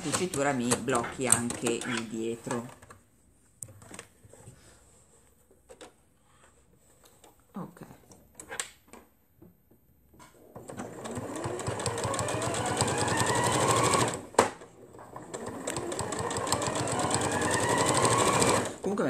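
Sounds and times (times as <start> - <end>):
sewing machine stitching: 10.5 - 18.8.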